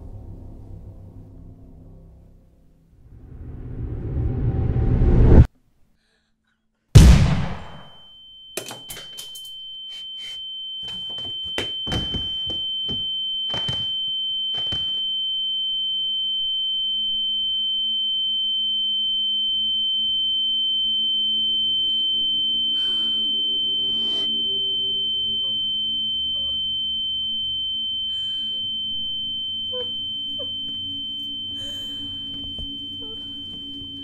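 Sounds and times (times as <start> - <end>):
low hum: 0.0 - 5.5, 19.8 - 34.0
high-pitched ringing tone: 7.8 - 34.0.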